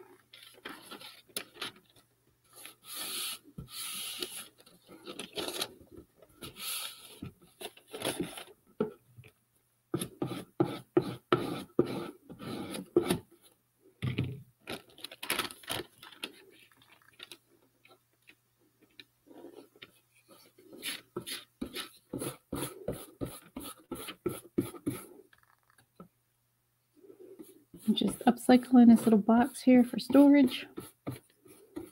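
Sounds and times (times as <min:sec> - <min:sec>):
paper rustling: 0:00.2 - 0:08.5, 0:14.6 - 0:17.4.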